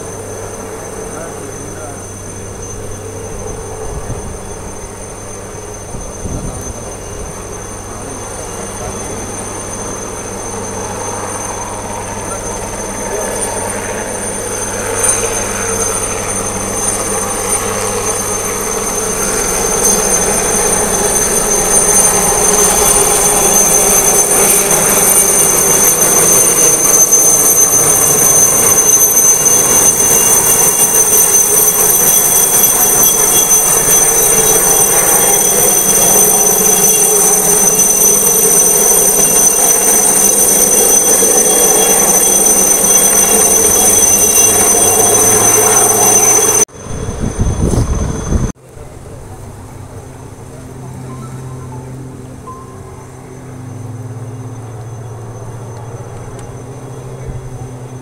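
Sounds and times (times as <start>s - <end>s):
helicopter rotor noise: 0.0s - 58.0s
helicopter turbine whine: 0.0s - 58.0s.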